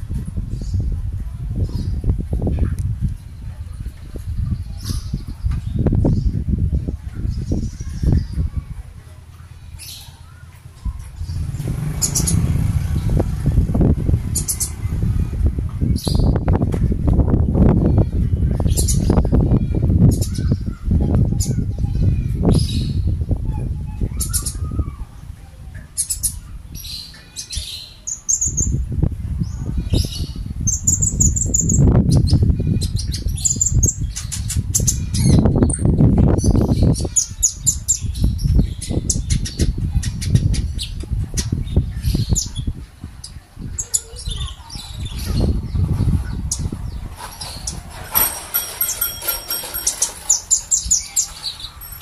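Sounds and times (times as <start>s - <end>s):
bird chirping and twittering: 0.0s - 8.8s, 9.4s - 52.0s
low rumbling noise: 10.3s - 26.8s.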